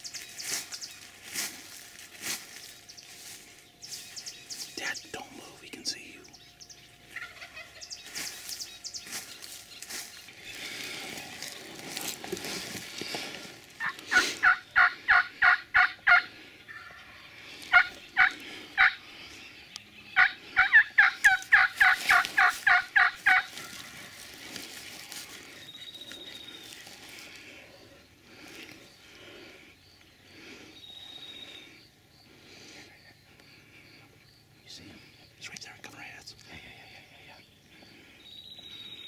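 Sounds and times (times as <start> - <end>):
turkey yelps: 7.1 - 8.3, 13.8 - 19.0, 20.2 - 24.0.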